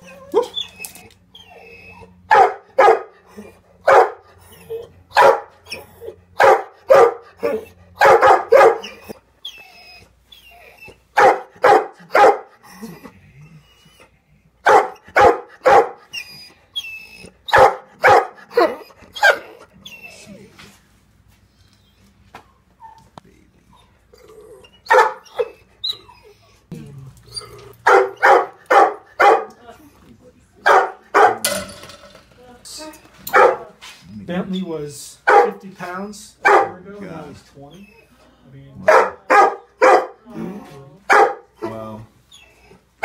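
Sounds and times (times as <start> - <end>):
dog barking: 2.3 - 3.2, 3.8 - 4.2, 5.1 - 5.6, 6.4 - 9.0, 11.2 - 12.5, 14.6 - 16.0, 17.5 - 19.6, 24.9 - 25.6, 27.8 - 29.6, 30.6 - 31.5, 33.3 - 33.7, 35.3 - 35.6, 36.4 - 36.8, 38.8 - 40.2, 41.1 - 41.8.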